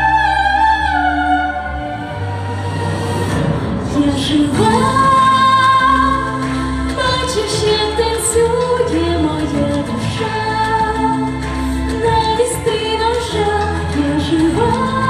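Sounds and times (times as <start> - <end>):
backing music: 0.0 - 15.0
woman singing pop ballad: 3.8 - 15.0.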